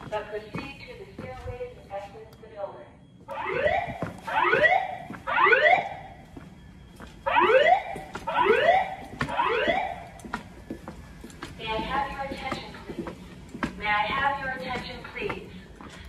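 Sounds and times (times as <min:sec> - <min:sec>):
fire alarm rising whoop tone: 0:03.2 - 0:11.2.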